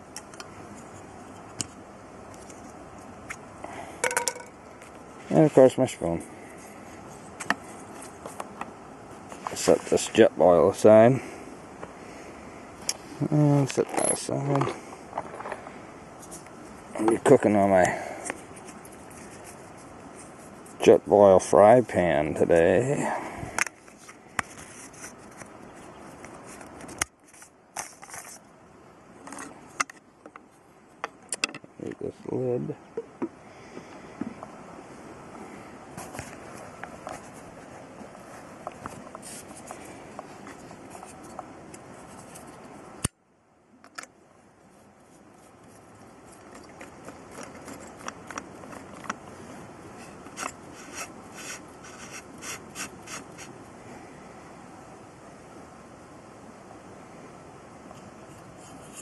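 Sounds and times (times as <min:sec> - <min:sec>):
steady hiss: 0:00.0 - 0:59.0
camp gear clicks and taps: 0:00.1 - 0:05.0, 0:23.5 - 0:25.6, 0:29.2 - 0:32.0, 0:43.8 - 0:44.2, 0:46.3 - 0:49.3, 0:50.0 - 0:53.5.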